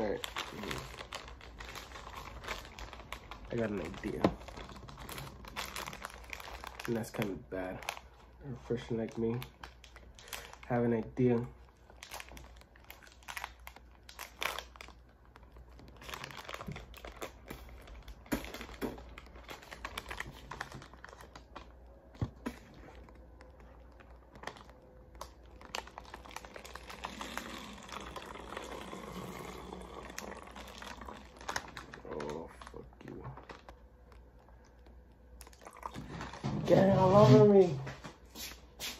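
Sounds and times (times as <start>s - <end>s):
plastic bottle crinkling: 0.0s - 8.3s, 8.9s - 37.6s
liquid pouring and gurgling: 26.5s - 31.9s, 35.4s - 36.5s.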